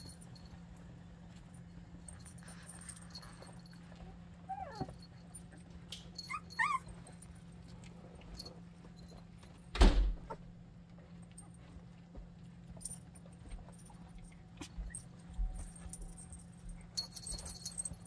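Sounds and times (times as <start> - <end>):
puppies whimpering: 4.4 - 5.0, 6.2 - 7.0
puppy yips: 4.5 - 4.9, 6.2 - 7.0.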